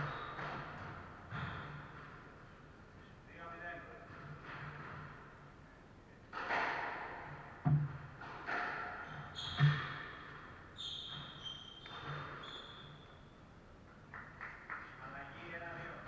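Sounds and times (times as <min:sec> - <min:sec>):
squash ball hitting walls: 0:00.0 - 0:02.4, 0:06.3 - 0:12.5
shoes squeaking on wooden floor: 0:08.9 - 0:13.4.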